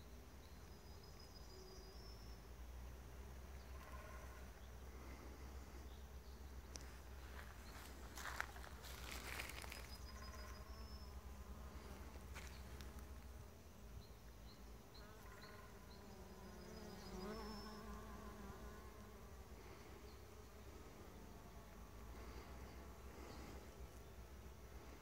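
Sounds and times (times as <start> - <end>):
bees buzzing: 3.3 - 25.0.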